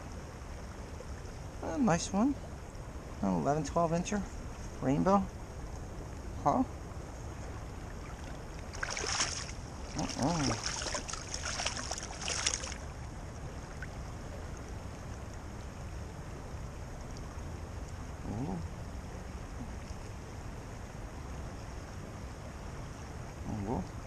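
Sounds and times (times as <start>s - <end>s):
flowing creek: 0.0s - 24.0s
fish splashing in water: 8.0s - 12.9s.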